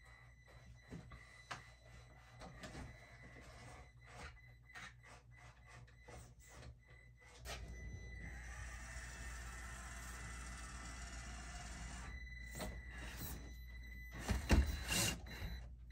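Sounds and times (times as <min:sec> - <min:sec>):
small electric motor whirring: 0:07.7 - 0:13.4.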